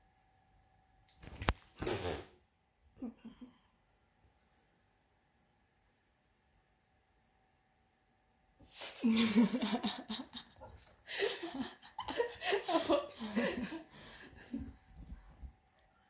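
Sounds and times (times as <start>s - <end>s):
faint steady hum: 2.5s - 16.0s
woman laughing loudly: 9.0s - 14.7s.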